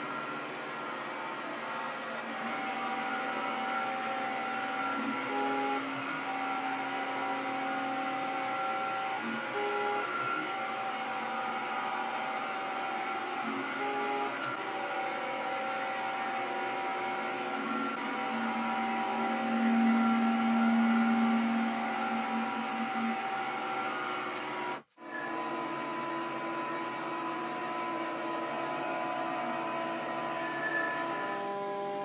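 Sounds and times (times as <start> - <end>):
metal lathe motor whine: 0.0 - 32.0.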